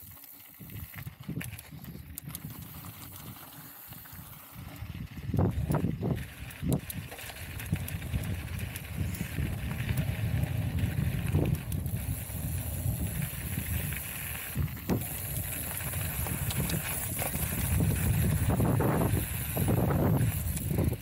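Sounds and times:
bike tyres rumbling: 0:00.0 - 0:21.0
wind buffeting microphone: 0:04.6 - 0:21.0.

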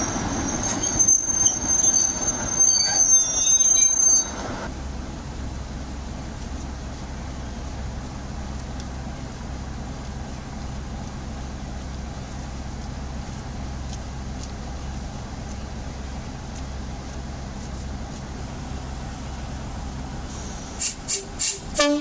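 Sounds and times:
diesel locomotive engine running: 0:00.0 - 0:22.0.

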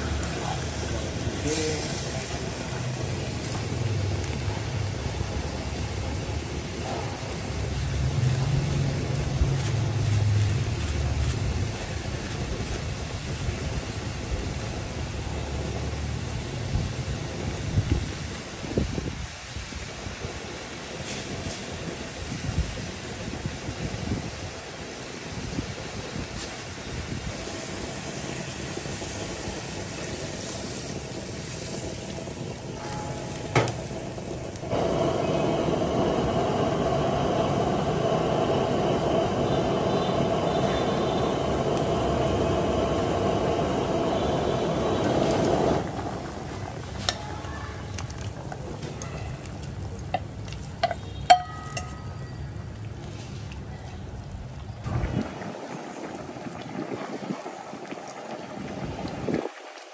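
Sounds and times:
soup sizzling and bubbling in wok: 0:00.0 - 0:59.9
utensils clinking against pan: 0:50.1 - 0:52.4.

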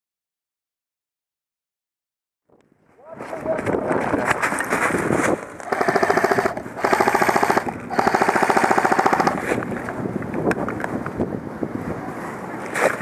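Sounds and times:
airsoft rifle firing full auto: 0:05.7 - 0:09.5.

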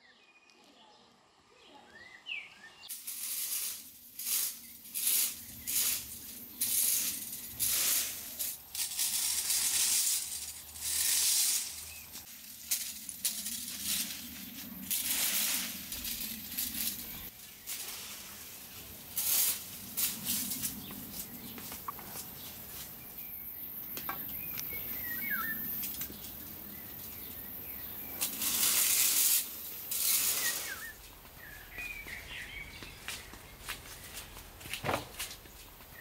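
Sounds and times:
rake scratching dry grass: 0:02.9 - 0:23.4, 0:24.1 - 0:32.3
faint bird chirps: 0:23.4 - 0:28.0.

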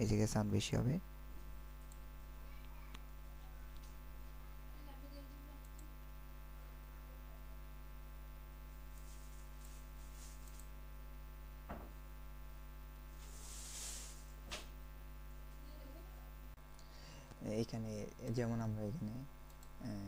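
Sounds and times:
low mains hum: 0:00.0 - 0:20.0
soft hiss: 0:13.1 - 0:14.7.

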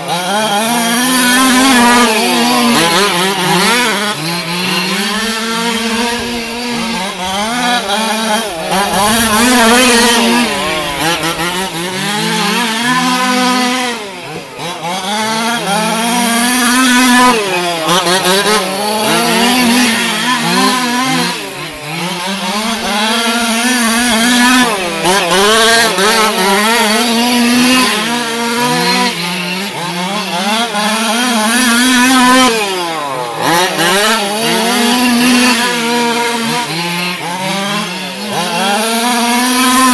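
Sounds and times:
rc car engines buzzing: 0:00.0 - 0:39.9.

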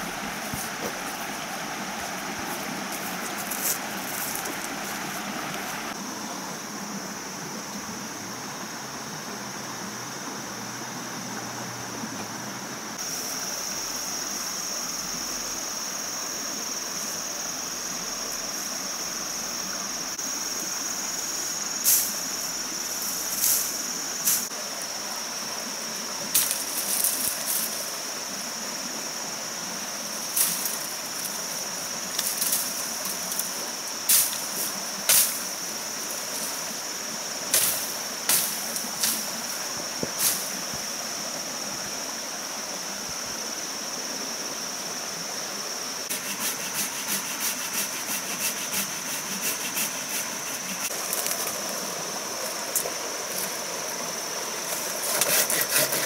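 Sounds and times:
high-pitched insect drone: 0:00.0 - 0:11.6, 0:12.5 - 0:56.0
sawing through bamboo: 0:46.1 - 0:51.0, 0:54.7 - 0:56.0
knocks of bamboo being cut: 0:54.7 - 0:56.0.

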